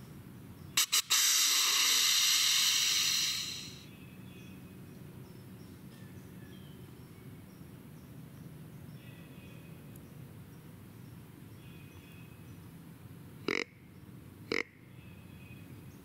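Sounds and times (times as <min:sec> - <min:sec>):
loud steady hiss: 0:00.8 - 0:03.8
quick clicks: 0:00.8 - 0:03.8.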